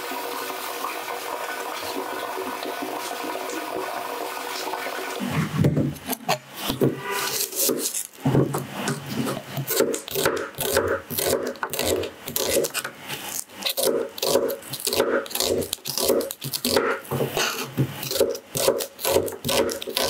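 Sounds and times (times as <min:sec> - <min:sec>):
knife slicing onion on board: 0:05.8 - 0:20.0.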